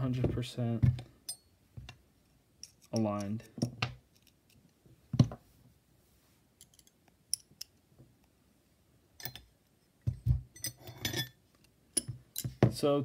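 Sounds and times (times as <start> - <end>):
metal hardware clicking and tapping: 9.2 - 9.5.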